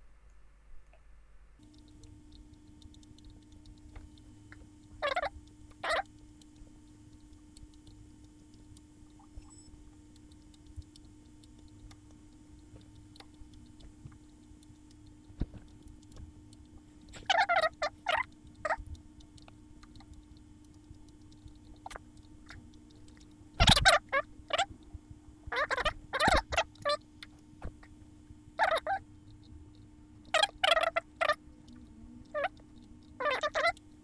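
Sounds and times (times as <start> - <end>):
steady low hum: 0.0 - 34.0
faint clicks: 1.6 - 34.0
animal calling rapidly: 5.0 - 6.1, 17.1 - 18.8, 23.6 - 24.8, 25.5 - 27.0, 28.6 - 29.0, 30.3 - 31.4, 32.3 - 32.6, 33.2 - 33.8.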